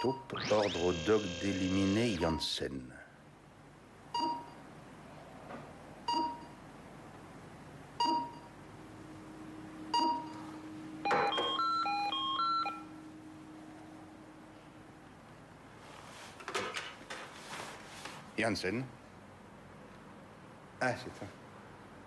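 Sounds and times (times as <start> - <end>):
electronic beeps: 0.0 - 2.6
faint low steady hum: 0.0 - 16.2.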